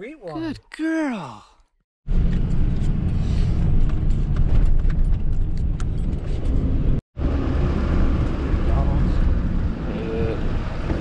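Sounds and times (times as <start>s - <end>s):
rattles and knocks: 3.7s - 7.0s.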